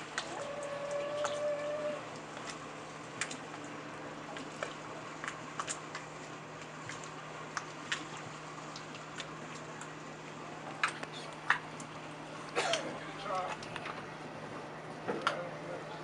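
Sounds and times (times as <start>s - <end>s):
small waves lapping against dock: 0.0s - 16.0s.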